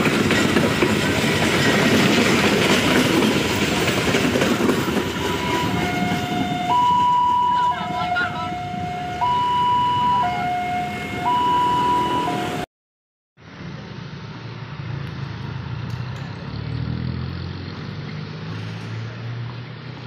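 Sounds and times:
road vehicle engines rumbling: 0.0s - 12.7s, 13.4s - 20.0s
level crossing alarm two-tone: 5.2s - 12.7s.

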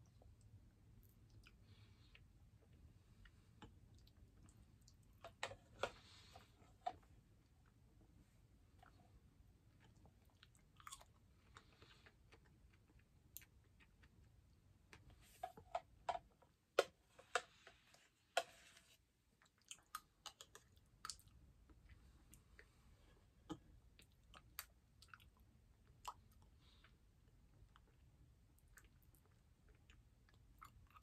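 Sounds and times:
soft chewing: 0.0s - 31.0s.

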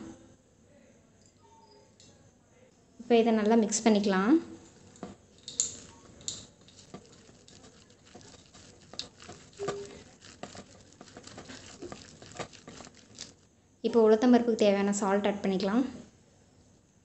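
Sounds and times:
hand mixing batter in bowl: 4.6s - 13.5s.

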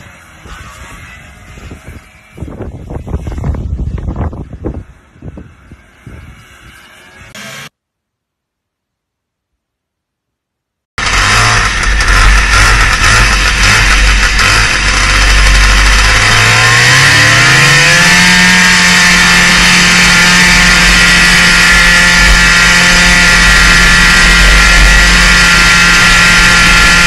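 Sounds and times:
snowmobile engine accelerating: 5.7s - 7.7s, 11.0s - 27.0s.

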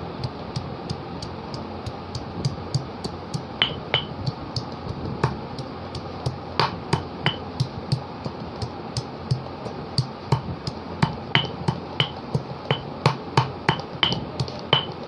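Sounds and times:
pestle pounding in metal mortar: 0.2s - 15.0s
ringing metallic clinks: 3.6s - 4.1s.

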